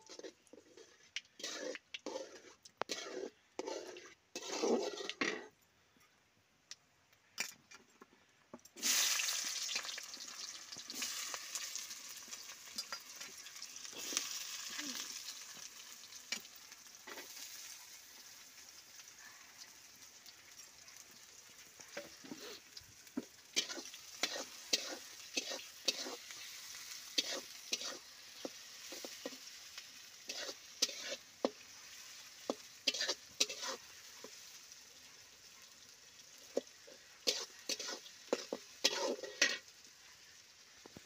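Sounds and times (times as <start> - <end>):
onions sizzling in oil: 0.0 - 5.2, 8.8 - 41.0
metal spatula scraping pan: 0.0 - 5.5, 23.6 - 29.4, 30.2 - 34.3, 36.5 - 39.7.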